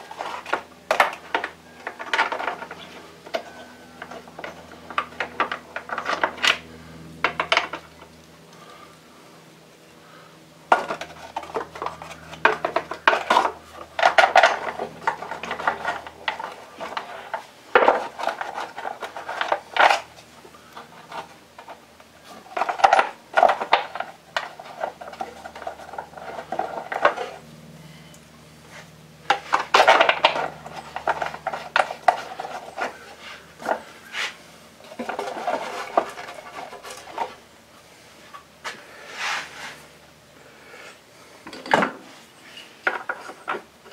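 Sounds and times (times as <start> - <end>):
metal tools clinking and scraping: 28.7 - 37.4.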